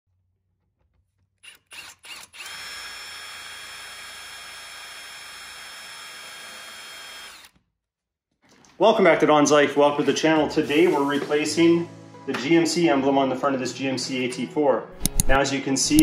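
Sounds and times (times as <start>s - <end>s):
power drill boring into plastic: 1.4s - 7.6s.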